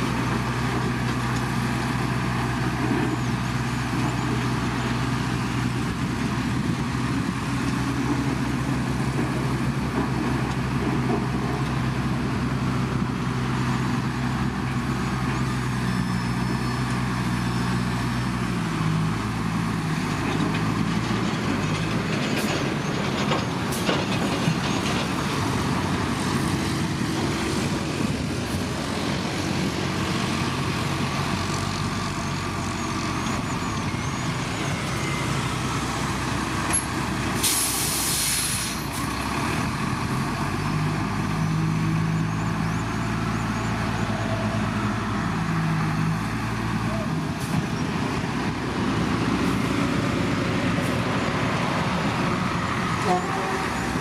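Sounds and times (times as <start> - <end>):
heavy diesel machinery running: 0.0 - 54.0
sharp hiss of air: 37.4 - 38.8.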